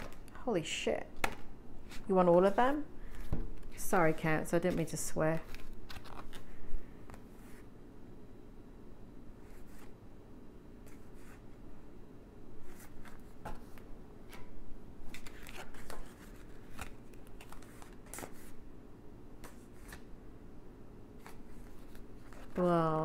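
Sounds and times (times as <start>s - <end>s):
cards being shuffled: 1.2s - 7.7s, 12.6s - 18.6s, 19.4s - 20.1s, 21.2s - 23.0s.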